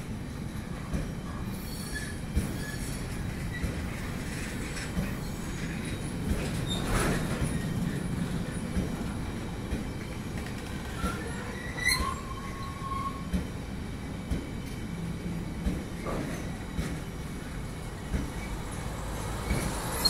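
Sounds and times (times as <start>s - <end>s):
train wheels rumbling on rail: 0.0s - 20.0s
train wheel squeal: 0.7s - 8.9s, 10.3s - 13.5s, 18.0s - 20.0s.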